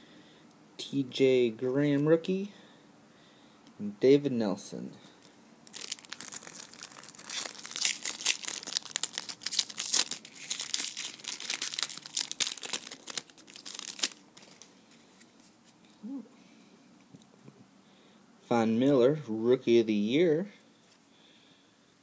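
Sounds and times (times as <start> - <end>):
foil wrapper tearing and crinkling: 5.6 - 14.7.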